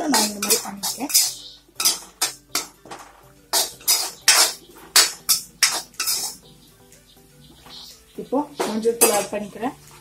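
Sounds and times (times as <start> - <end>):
metal spoon scraping metal pan: 0.0 - 2.8, 3.5 - 6.5, 8.9 - 9.4.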